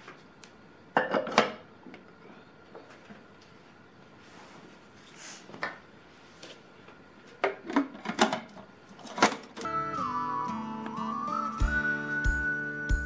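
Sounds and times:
music: 9.6s - 13.0s.

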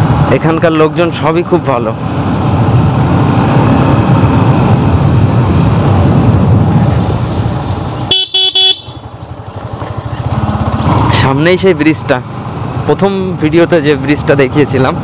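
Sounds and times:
road and wind noise: 0.0s - 15.0s
motorcycle engine running: 2.0s - 13.4s.

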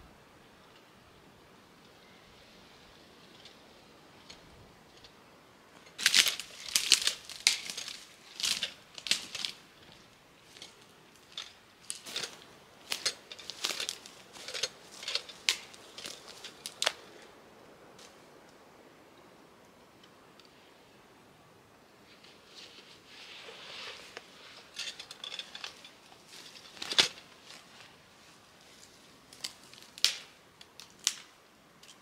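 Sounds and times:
dry brush crackling: 5.7s - 17.3s, 22.1s - 32.0s
footsteps crunching dry grass: 6.0s - 17.3s.

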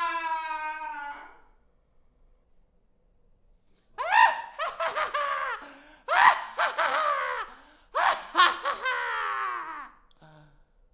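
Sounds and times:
man laughing evilly: 4.4s - 9.8s.

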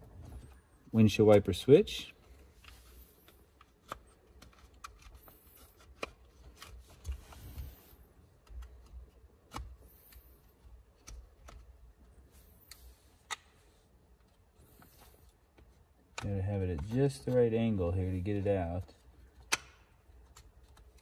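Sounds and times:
sharp plastic clicks: 19.4s - 21.0s.

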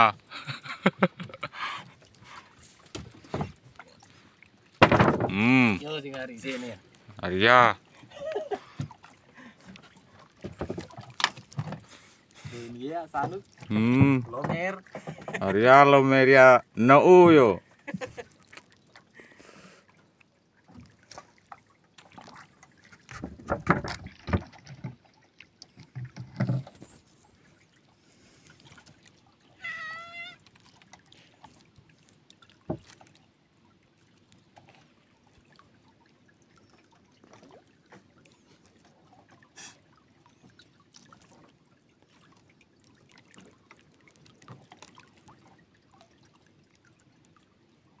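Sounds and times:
water around canoe: 0.0s - 48.0s.

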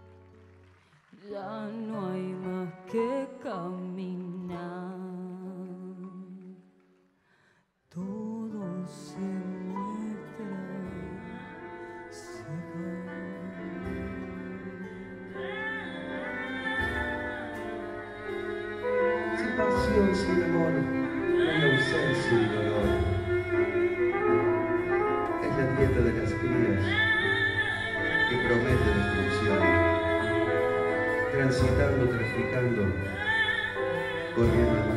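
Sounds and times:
piano: 0.0s - 34.9s
sustained lead melody: 9.9s - 34.9s
double bass: 10.4s - 34.9s.

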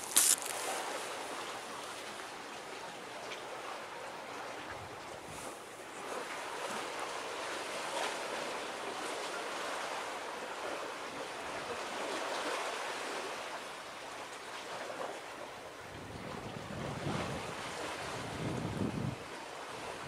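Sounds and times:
waves washing: 0.0s - 2.5s
wind blowing over water: 15.7s - 20.0s
wind buffeting on microphone: 16.1s - 19.2s.

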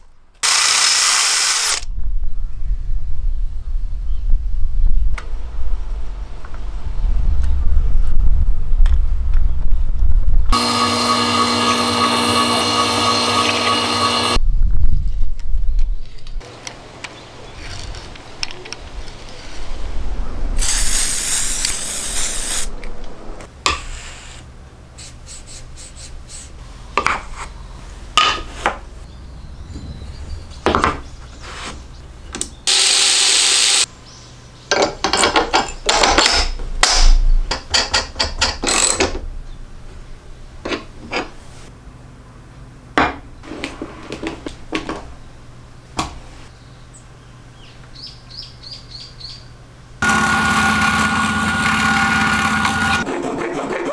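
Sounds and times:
power tool noise: 0.4s - 1.9s, 10.5s - 14.4s, 20.6s - 22.7s, 32.7s - 33.9s, 50.0s - 53.0s
metal parts clicking and knocking: 34.7s - 39.2s.

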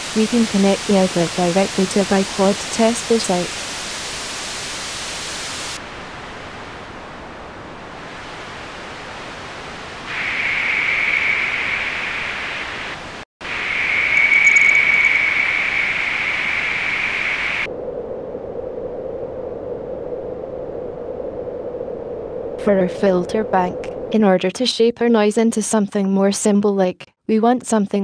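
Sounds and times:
filtered white noise hiss: 0.0s - 17.7s.

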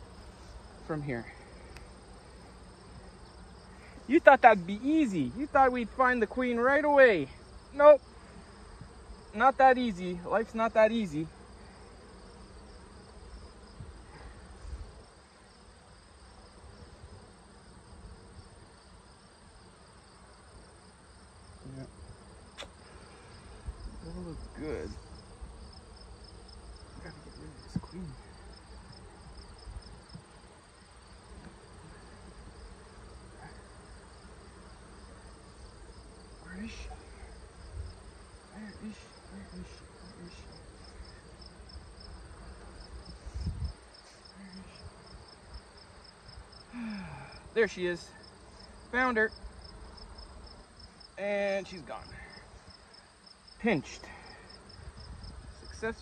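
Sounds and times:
crickets chirping: 0.0s - 56.0s
honeybees buzzing: 0.0s - 56.0s.

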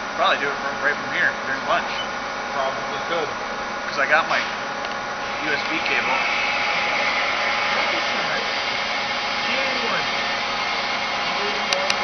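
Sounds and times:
milling machine whirring: 0.0s - 12.0s.

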